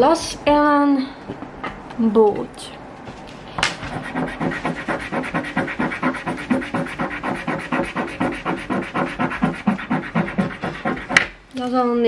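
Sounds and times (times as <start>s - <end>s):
coin scratching lottery ticket: 3.9s - 11.2s.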